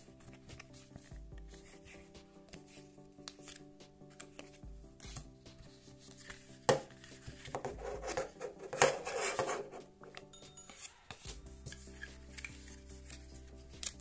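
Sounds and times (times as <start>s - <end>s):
background music: 0.0s - 14.0s
leather and cards rubbing: 0.1s - 9.9s.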